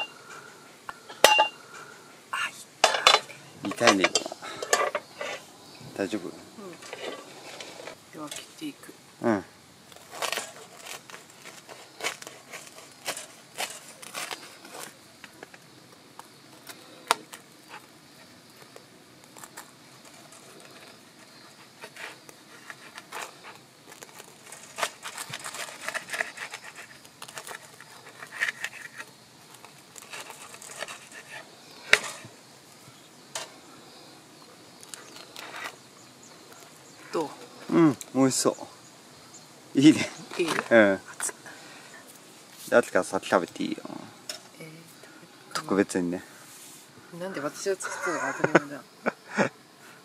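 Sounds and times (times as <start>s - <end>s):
knife crunching toasted bread: 9.9s - 15.0s.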